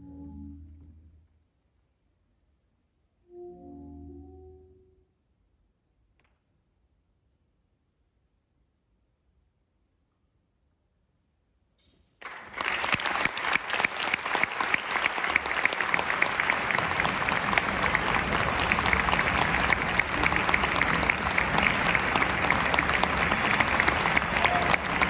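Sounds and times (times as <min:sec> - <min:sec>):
audience applause: 0:12.2 - 0:25.0.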